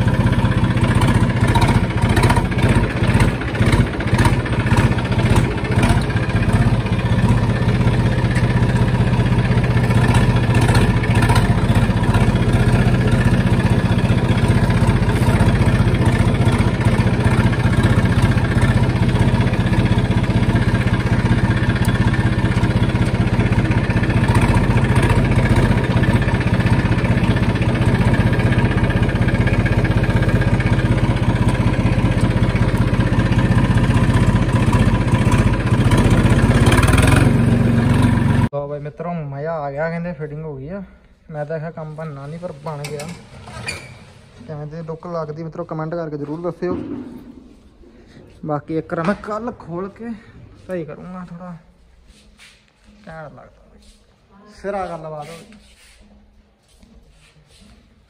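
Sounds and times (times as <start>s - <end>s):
vehicle engine idling: 0.0s - 38.5s.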